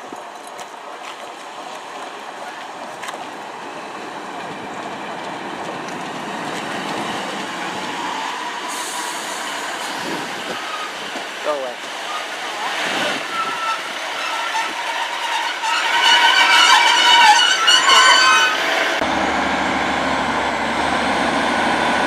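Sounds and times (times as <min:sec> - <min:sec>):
train wheels rumbling on rails: 0:00.0 - 0:22.0
brake squeal: 0:06.7 - 0:19.0.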